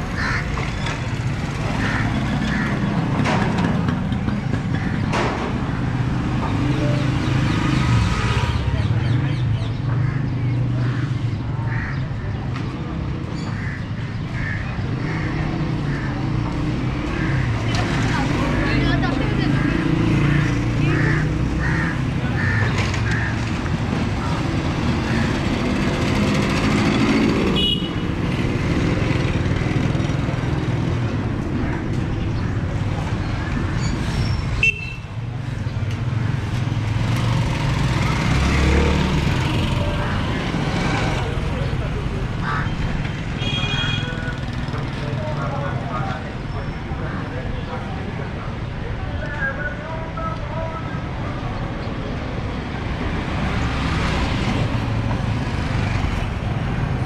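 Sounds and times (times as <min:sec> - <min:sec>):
vehicle engines rumbling: 0:00.0 - 0:57.0.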